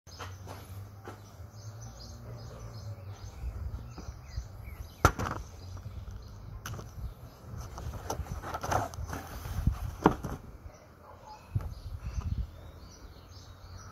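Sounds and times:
faint bird chirps: 0:10.6 - 0:13.9.

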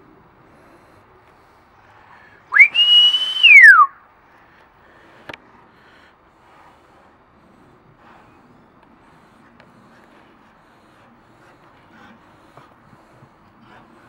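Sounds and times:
person whistling loudly: 0:02.5 - 0:04.0.

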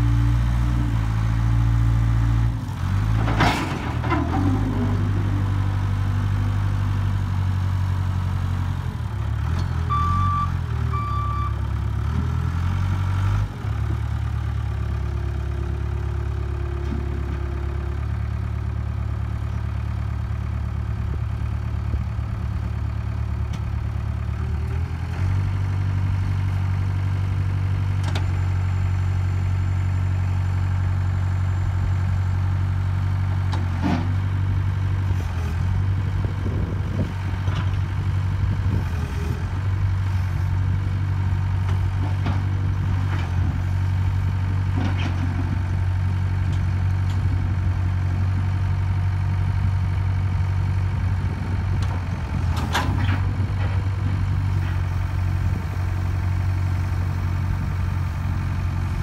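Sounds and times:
diesel engine running: 0:00.0 - 0:59.0
short beeps: 0:09.9 - 0:11.6.

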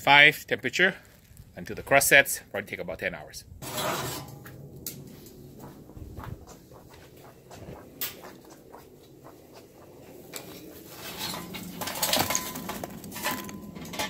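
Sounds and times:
charcoal clicking and clattering: 0:11.1 - 0:14.0.

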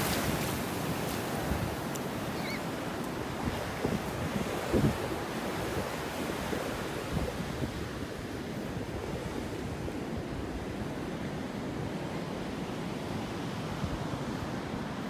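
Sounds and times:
surf washing on beach: 0:00.0 - 0:15.0
wind buffeting microphone: 0:01.2 - 0:10.8.

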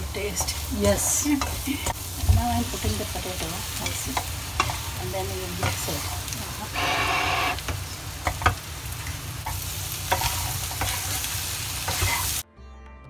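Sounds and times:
potatoes sizzling in hot oil: 0:00.0 - 0:12.4
wooden spatula scraping a pan: 0:03.8 - 0:08.4, 0:09.5 - 0:12.4.

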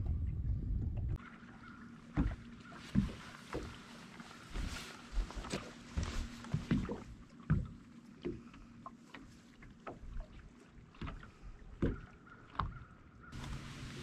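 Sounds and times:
water lapping against hull: 0:00.0 - 0:14.0.

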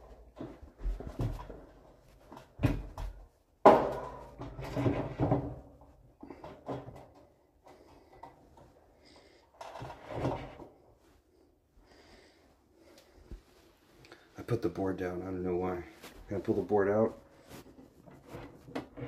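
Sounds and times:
boards knocking against frame: 0:02.6 - 0:05.6.

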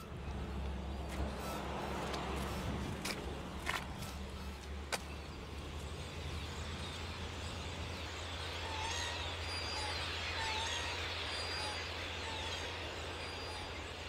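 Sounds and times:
steady low rumble: 0:00.0 - 0:08.8.

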